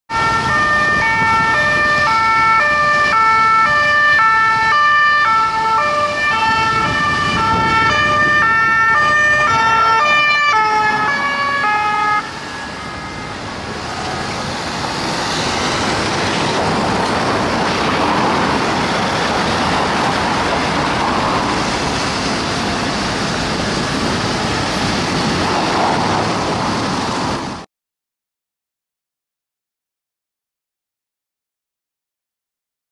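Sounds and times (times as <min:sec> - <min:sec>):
two-tone police siren: 0:00.1 - 0:16.5
city traffic noise: 0:00.1 - 0:27.7.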